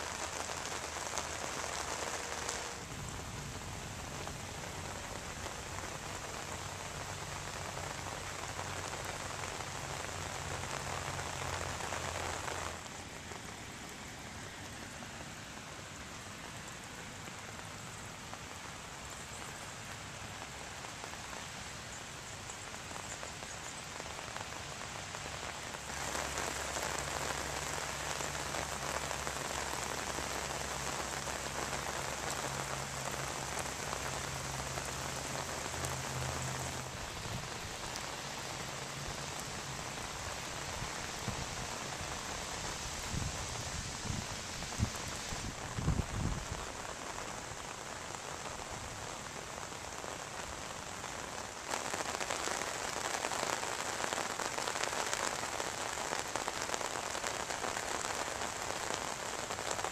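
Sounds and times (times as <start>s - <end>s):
rain on pavement: 0.0s - 59.9s.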